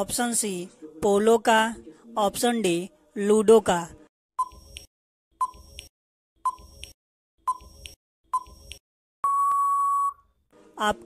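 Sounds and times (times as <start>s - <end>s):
long steady beep: 9.2s - 10.2s
short electronic beeps: 9.2s - 10.3s.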